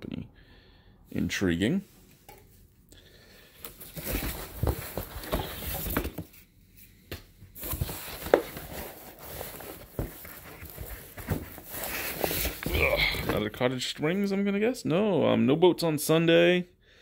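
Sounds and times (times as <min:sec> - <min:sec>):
cardboard packing rustling and scraping: 0:03.6 - 0:06.4, 0:07.5 - 0:13.6.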